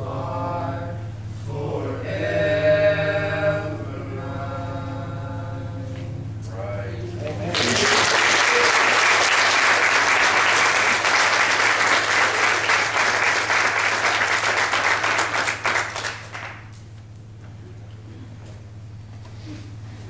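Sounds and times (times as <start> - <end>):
congregation applauding: 7.2 - 16.8.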